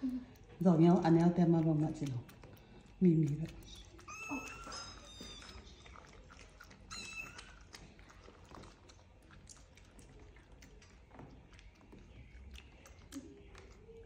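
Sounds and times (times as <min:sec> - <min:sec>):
animals lapping liquid: 0:00.0 - 0:14.0.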